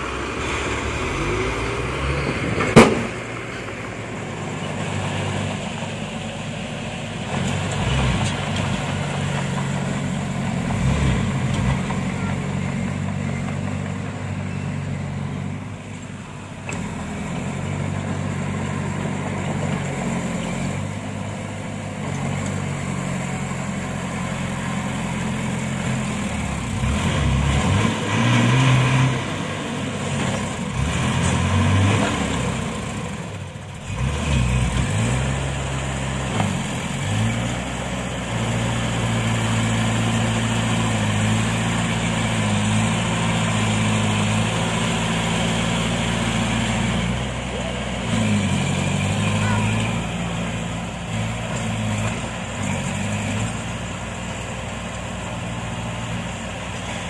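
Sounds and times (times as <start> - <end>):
diesel engines revving: 0.0 - 57.0.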